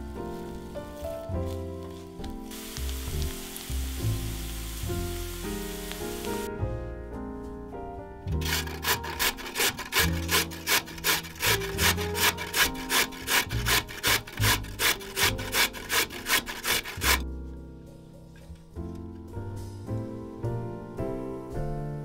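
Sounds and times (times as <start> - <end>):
soft background music: 0.0 - 22.0
rhythmic rasping strokes: 8.4 - 17.2.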